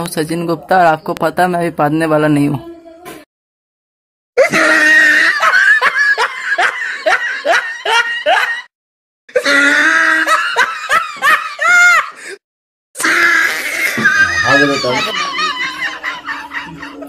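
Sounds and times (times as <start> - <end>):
person laughing in bursts: 4.4 - 8.7, 9.7 - 12.3, 13.8 - 17.0.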